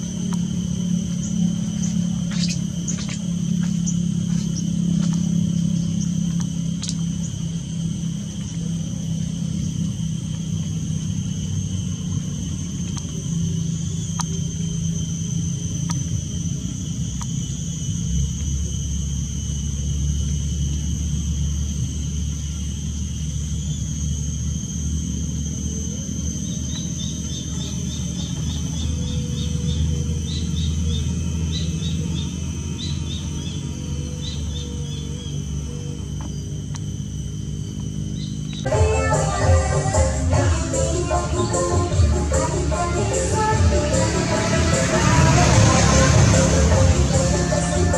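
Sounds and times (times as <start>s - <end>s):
high insect drone: 0.0s - 47.9s
low rumble: 40.1s - 47.9s.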